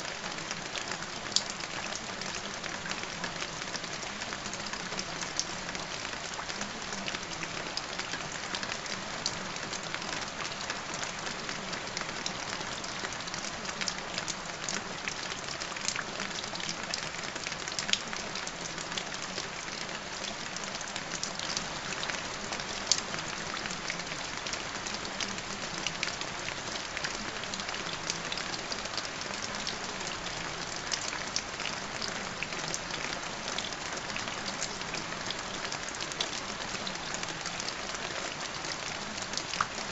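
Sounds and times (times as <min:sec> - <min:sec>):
steady rain falling: 0:00.0 - 0:39.9.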